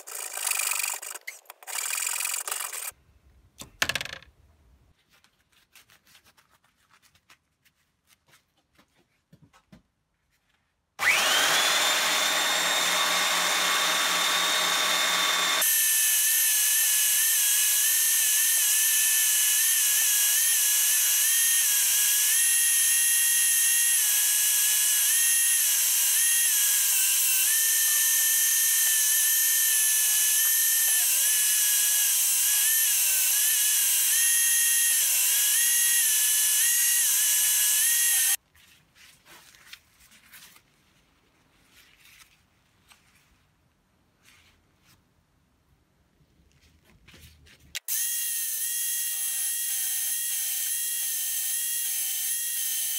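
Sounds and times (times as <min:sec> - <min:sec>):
handle grinding on sanding belt: 0:00.0 - 0:02.9
belt sander motor whine: 0:11.0 - 0:38.4.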